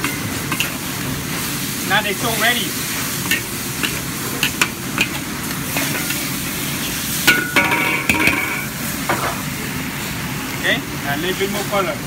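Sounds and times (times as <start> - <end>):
metal utensil scraping a pan: 0.0 - 0.8, 3.2 - 8.8
meat sizzling in a hot pan: 0.0 - 12.0.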